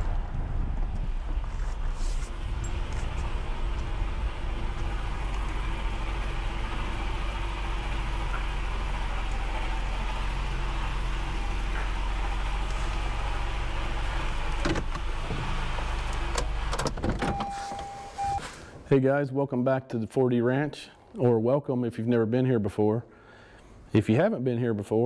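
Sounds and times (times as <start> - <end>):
car engine hum: 0.0 - 18.4.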